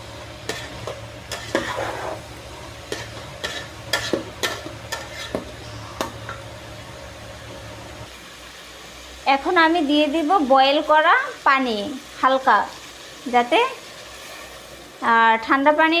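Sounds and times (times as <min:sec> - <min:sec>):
low sizzle of vegetables: 0:00.0 - 0:16.0
metal spatula scraping a pot: 0:00.4 - 0:06.3.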